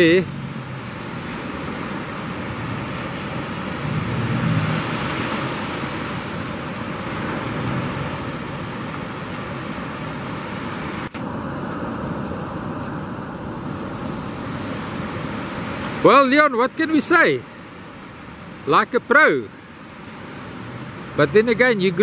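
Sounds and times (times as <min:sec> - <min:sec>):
wind on microphone: 0:00.0 - 0:16.1
surf washing on shore: 0:00.0 - 0:22.0.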